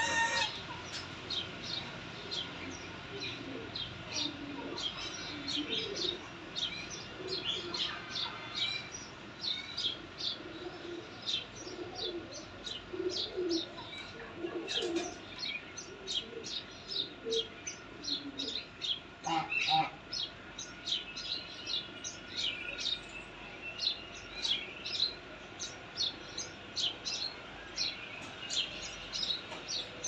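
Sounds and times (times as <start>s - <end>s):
goslings peeping: 0.0s - 0.6s, 19.2s - 20.0s.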